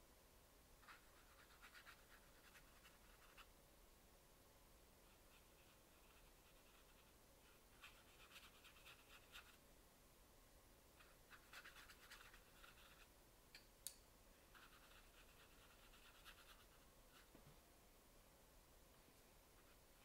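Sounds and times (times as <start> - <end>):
paintbrush scratching on paper: 0.8 - 3.5, 5.0 - 9.6, 11.0 - 13.1, 14.5 - 17.3, 19.6 - 20.0.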